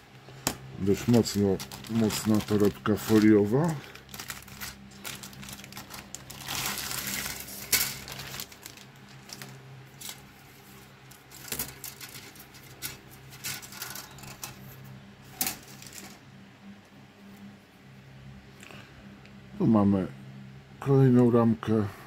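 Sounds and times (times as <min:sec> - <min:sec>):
plastic bag crinkling: 0:00.8 - 0:14.6.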